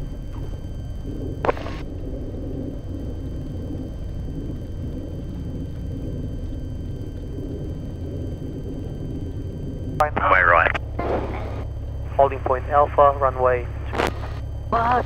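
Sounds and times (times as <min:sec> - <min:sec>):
light aircraft engine and propeller: 0:00.0 - 0:15.0
sharp crackle: 0:01.3 - 0:01.9, 0:13.9 - 0:14.5.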